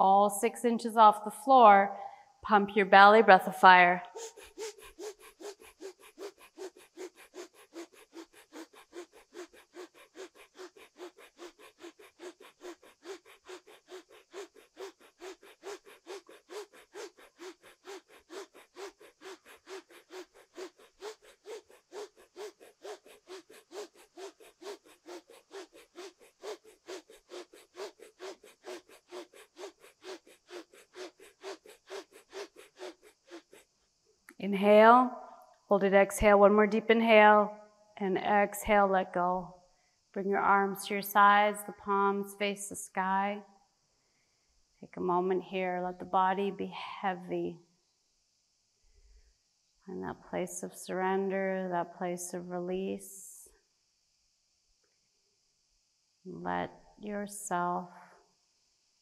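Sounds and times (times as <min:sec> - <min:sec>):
forceful nasal exhalations: 0:04.0 - 0:33.7.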